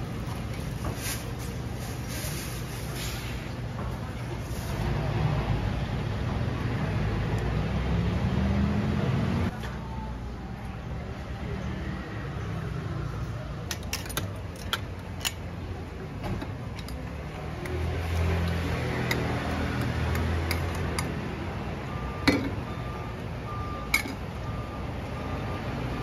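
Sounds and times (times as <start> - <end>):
street traffic hum: 0.0 - 26.0
metal utensils clinking on pots: 23.9 - 24.2.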